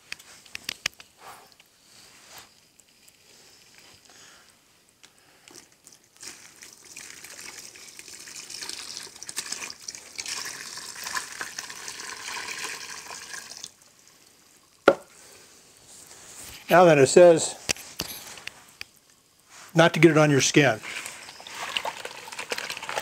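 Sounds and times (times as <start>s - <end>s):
water pouring into bucket: 5.6s - 14.9s, 19.9s - 23.0s.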